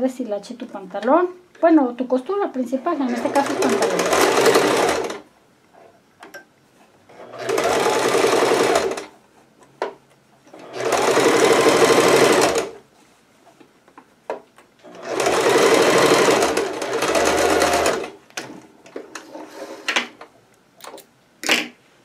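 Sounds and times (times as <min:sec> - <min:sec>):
sewing machine stitching: 0:03.0 - 0:05.2, 0:07.1 - 0:09.1, 0:10.5 - 0:12.8, 0:14.8 - 0:18.2.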